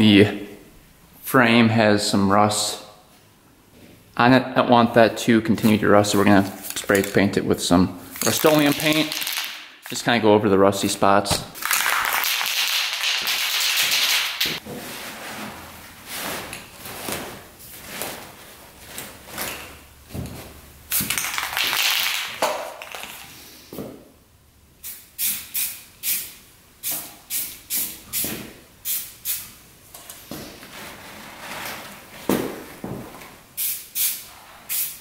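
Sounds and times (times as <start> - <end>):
spray paint can hissing: 24.8 - 29.5, 33.6 - 35.0.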